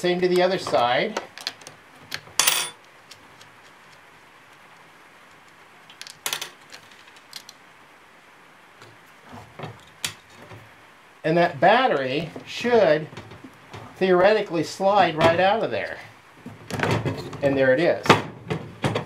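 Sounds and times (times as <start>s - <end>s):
wrench clinking on metal bolts: 2.4s - 2.8s.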